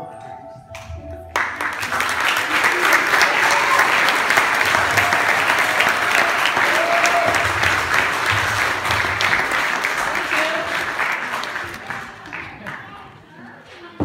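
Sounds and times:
audience applauding: 0:01.3 - 0:13.2.

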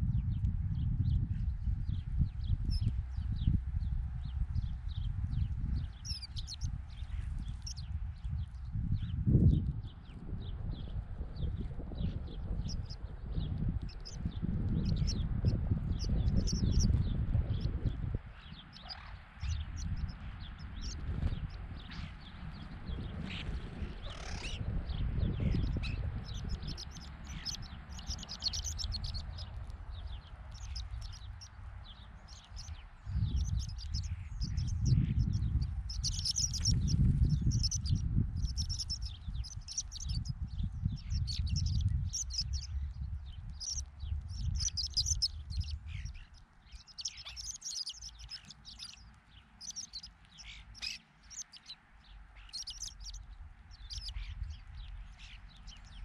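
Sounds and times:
wind rumble on microphone: 0:00.0 - 0:56.0
birds giving short high calls: 0:25.4 - 0:40.3, 0:43.6 - 0:51.8, 0:52.4 - 0:56.0.

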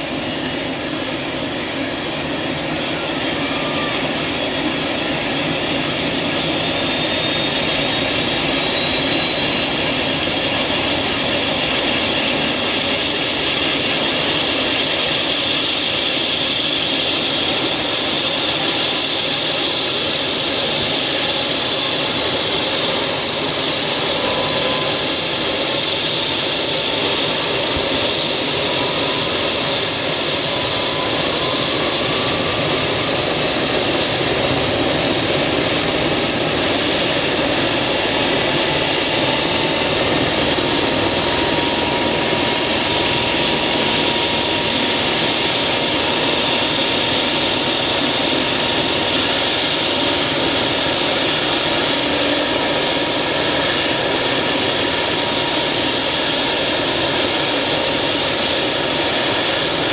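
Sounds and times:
helicopter turbine engines whining: 0:00.0 - 0:59.9.

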